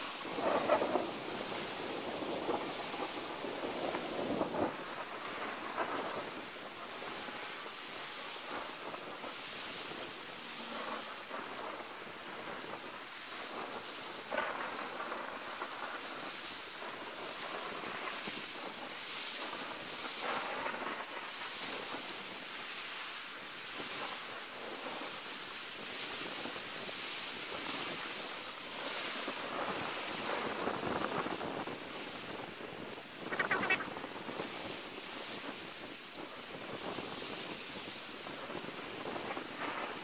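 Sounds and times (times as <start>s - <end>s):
waves washing on shore: 0.0s - 40.0s
wind on microphone: 0.0s - 40.0s
short high-pitched burst: 33.3s - 33.9s.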